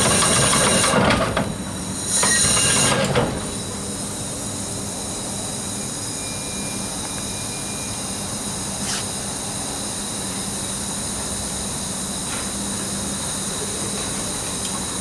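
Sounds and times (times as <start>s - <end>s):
steam hiss: 0.0s - 6.9s, 8.2s - 15.0s
steam winch machinery: 0.0s - 15.0s.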